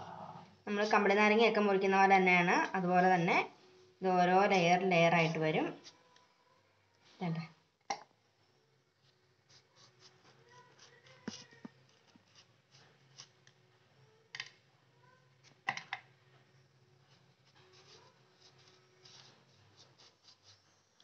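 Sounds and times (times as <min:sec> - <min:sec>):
knife slicing lime: 0:09.5 - 0:13.4, 0:17.4 - 0:20.7.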